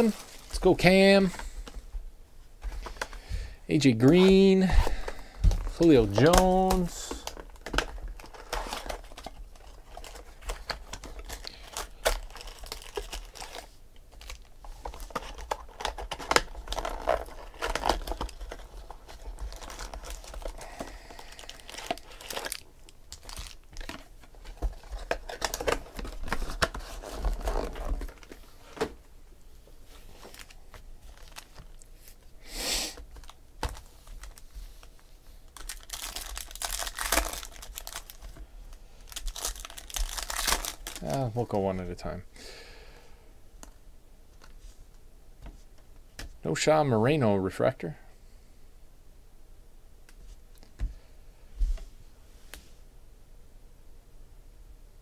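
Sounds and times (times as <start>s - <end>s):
plastic bag crinkling: 4.0s - 28.7s, 30.1s - 32.1s, 33.1s - 38.4s, 39.0s - 41.6s
pack wrapper tearing: 5.7s - 20.6s, 21.2s - 24.0s, 35.5s - 38.2s, 39.0s - 41.3s.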